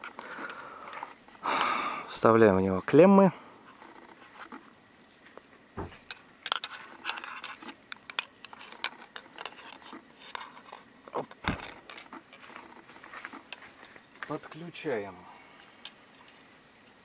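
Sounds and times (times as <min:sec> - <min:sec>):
dull knocks: 0:05.8 - 0:06.0.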